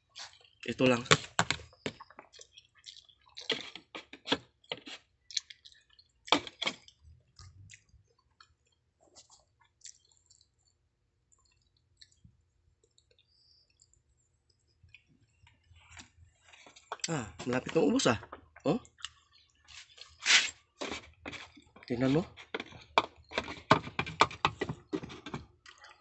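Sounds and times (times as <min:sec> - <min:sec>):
chewing rice: 0:00.0 - 0:26.0
metal spoon scraping plastic container: 0:03.4 - 0:05.1, 0:19.7 - 0:25.4.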